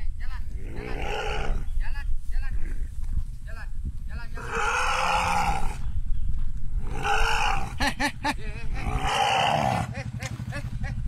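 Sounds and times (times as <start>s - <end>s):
elephant calf trumpeting: 4.4s - 5.8s, 6.8s - 7.8s, 8.8s - 10.0s
motorbike engine idling: 8.0s - 11.0s.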